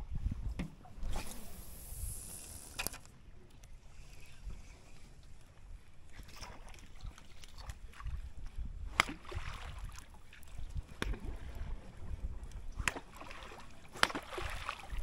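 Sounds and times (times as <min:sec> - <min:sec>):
wind on microphone: 0:00.0 - 0:02.7, 0:07.0 - 0:15.0
small waves lapping: 0:03.8 - 0:15.0
sharp water splashes: 0:08.9 - 0:11.4, 0:12.8 - 0:15.0.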